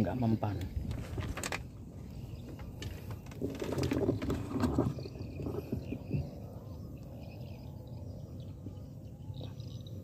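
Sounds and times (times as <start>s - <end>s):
rifle rustling and knocking: 0.7s - 1.8s, 2.4s - 5.9s
faint bird chirps: 4.8s - 10.0s.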